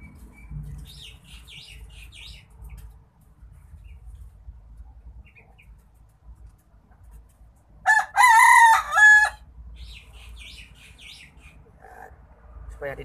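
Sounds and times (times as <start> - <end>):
rooster crowing: 7.8 - 9.4.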